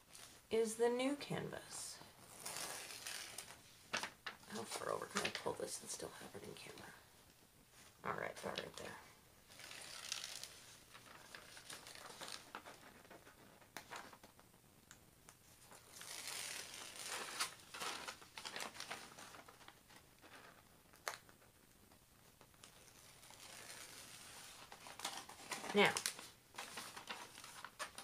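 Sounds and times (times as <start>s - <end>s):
plastic film crinkling: 2.2s - 5.6s, 9.5s - 14.4s, 15.7s - 21.4s, 22.4s - 28.0s.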